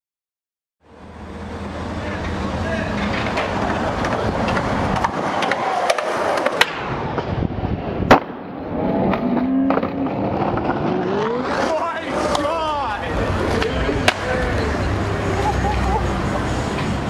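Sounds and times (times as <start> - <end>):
skateboard wheels rolling on concrete: 0.9 - 17.0
skateboard clacks: 2.1 - 7.3, 9.7 - 12.7, 13.3 - 14.8
skateboard landing slap: 3.2 - 7.3, 8.0 - 8.5.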